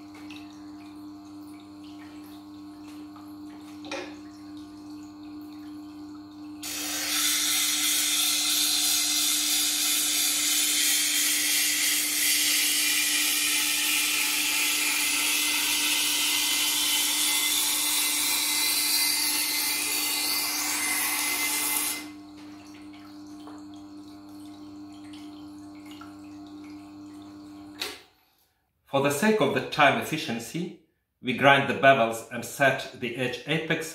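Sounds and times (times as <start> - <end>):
motor hum: 0.0 - 28.0
knife grinding on wheel: 6.6 - 22.2.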